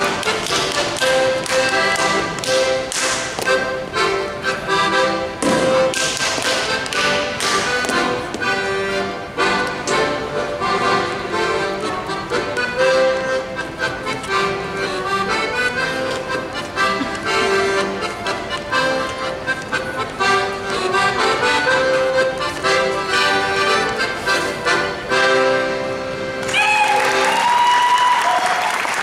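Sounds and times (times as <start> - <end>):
accordion folk dance tune: 0.0 - 27.4
slaps and stamps on the beat: 0.2 - 3.5, 5.4 - 7.9.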